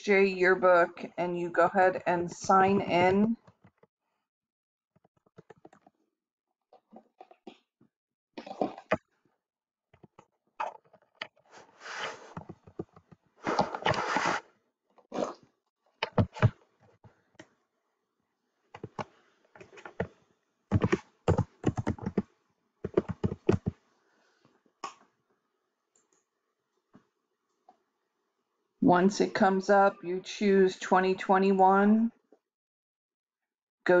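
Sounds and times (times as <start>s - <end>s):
typing on a computer keyboard: 20.7s - 22.3s, 22.9s - 23.8s.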